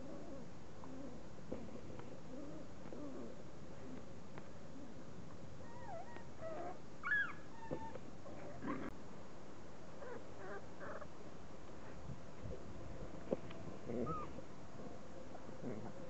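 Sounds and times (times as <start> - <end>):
steady background hiss: 0.0 - 16.0.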